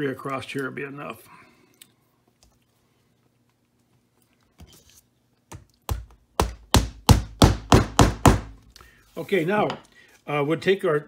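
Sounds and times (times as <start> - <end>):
hammer striking nail into wood: 5.9 - 8.6.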